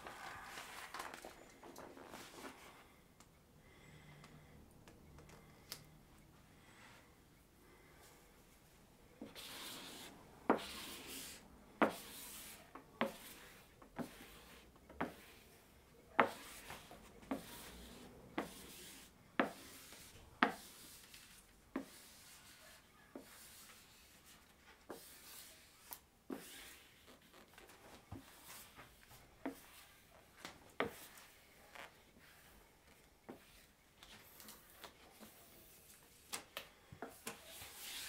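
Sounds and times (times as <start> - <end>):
squeegee rubbing over vinyl: 37.4 - 38.0.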